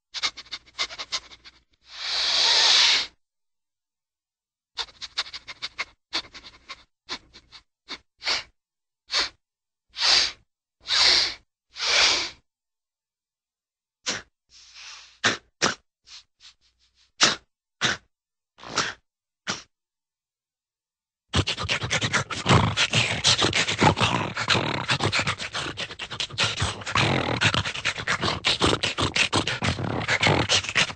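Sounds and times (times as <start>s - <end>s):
cartoon dog breathy bursts: 0.1s - 3.2s, 9.1s - 12.4s, 14.1s - 16.3s, 17.0s - 19.7s, 21.3s - 30.9s.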